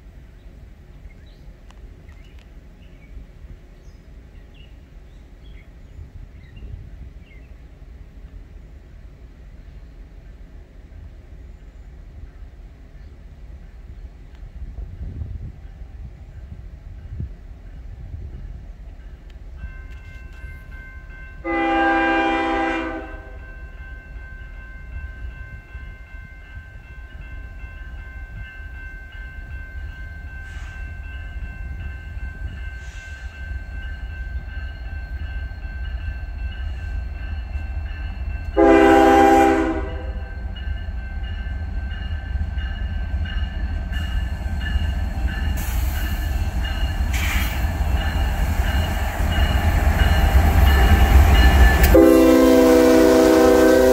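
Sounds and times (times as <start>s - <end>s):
diesel locomotive engine rumble: 0.0s - 53.9s
train wheels on rails: 0.0s - 53.9s
locomotive air horn blasts: 21.4s - 23.5s, 38.6s - 40.3s, 51.8s - 53.9s.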